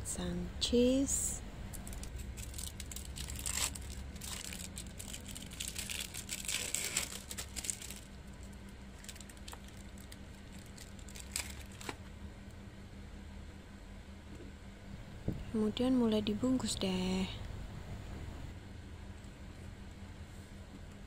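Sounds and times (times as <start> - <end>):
plastic film crinkling and tearing: 1.7 - 12.0.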